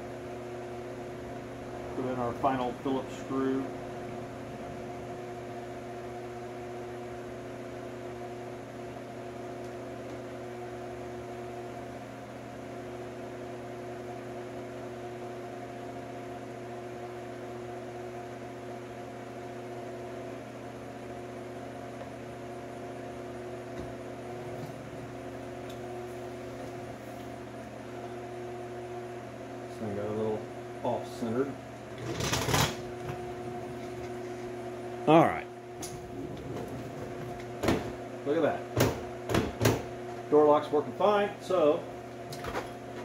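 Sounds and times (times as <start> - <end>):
electric fan humming: 0.0 - 43.0.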